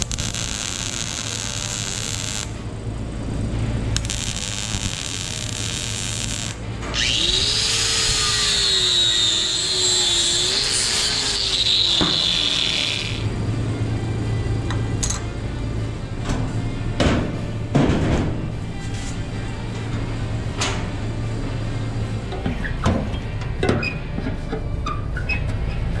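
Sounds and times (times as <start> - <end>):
angle grinder grinding metal: 0.0 - 2.5, 4.0 - 13.3
arc welding crackle: 0.0 - 13.4.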